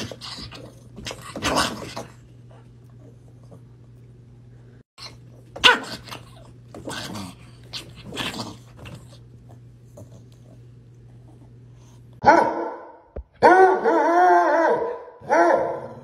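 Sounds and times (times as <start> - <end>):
dog howling: 13.4 - 16.0.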